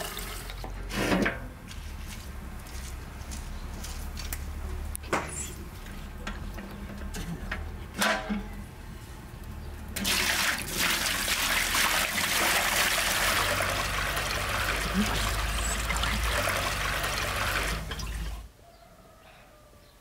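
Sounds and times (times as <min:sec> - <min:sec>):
juice pouring into metal basin: 0:09.9 - 0:18.4.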